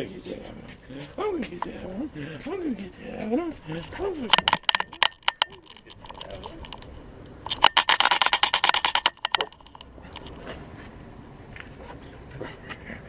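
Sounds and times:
camera and harness rattling: 3.8s - 10.6s.

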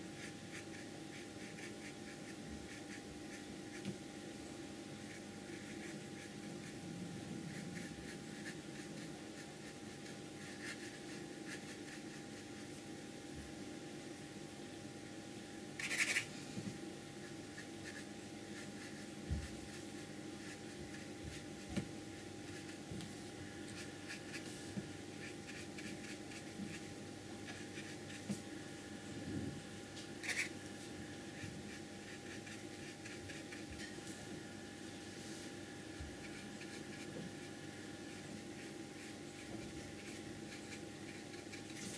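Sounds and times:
background hum: 0.0s - 41.9s
brush strokes on paper: 22.5s - 26.9s, 34.9s - 41.9s.

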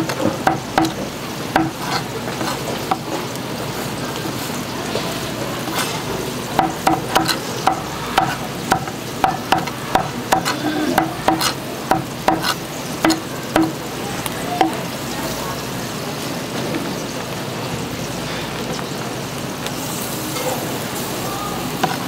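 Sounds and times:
knife chopping on wooden board: 0.0s - 1.0s, 1.6s - 3.0s, 6.6s - 13.8s.

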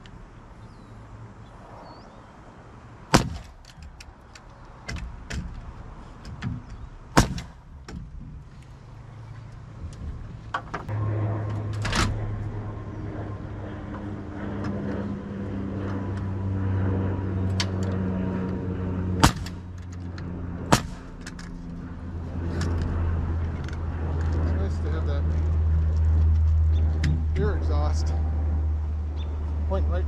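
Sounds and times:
low machine hum: 0.0s - 30.0s
nail gun firing: 19.2s - 19.6s, 20.7s - 21.1s.

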